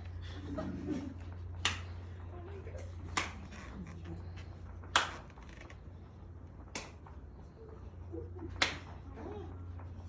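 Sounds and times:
hand claps: 0:01.5 - 0:02.2, 0:03.0 - 0:03.6, 0:04.8 - 0:05.7, 0:06.6 - 0:07.2, 0:08.4 - 0:09.1.

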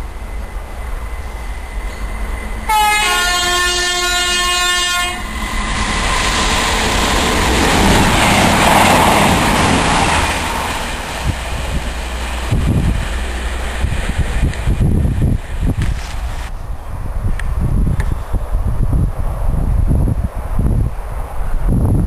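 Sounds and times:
train running past: 0:00.0 - 0:21.8
train horn: 0:02.6 - 0:05.3.

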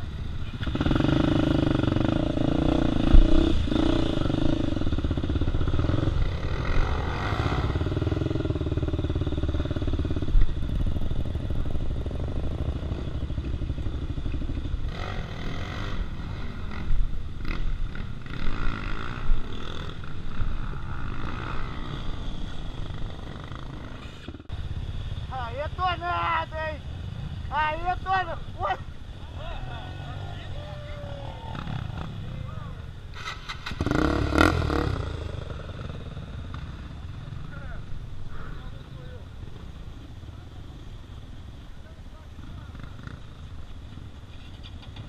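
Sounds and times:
motorcycle engine at low revs: 0:00.0 - 0:25.2, 0:33.1 - 0:38.5.

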